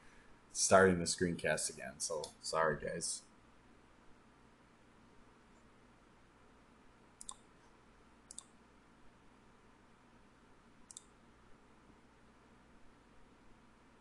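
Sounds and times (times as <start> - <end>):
computer mouse clicks: 7.2 - 7.5, 8.3 - 8.6, 10.8 - 11.2.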